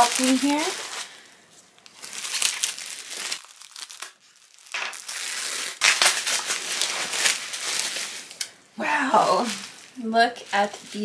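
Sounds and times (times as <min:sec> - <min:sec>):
bubble wrap crinkling: 0:00.0 - 0:11.0.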